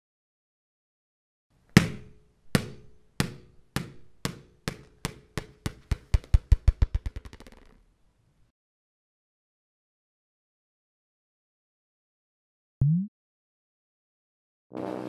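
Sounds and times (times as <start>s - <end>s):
ball bouncing on hard surface: 1.7s - 7.8s.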